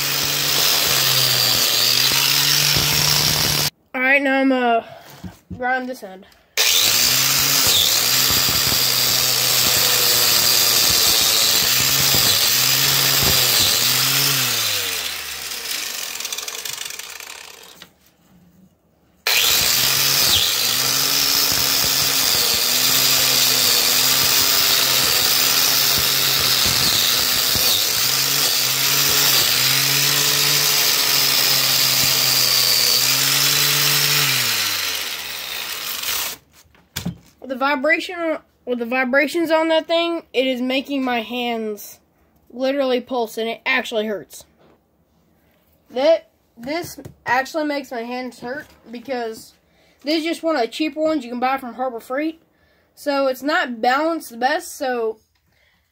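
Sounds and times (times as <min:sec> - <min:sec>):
grinder winding down: 0:00.0 - 0:03.7, 0:06.6 - 0:17.9, 0:19.2 - 0:36.4
wire wheel grinder on metal: 0:00.0 - 0:03.7, 0:06.6 - 0:17.9, 0:19.3 - 0:36.4.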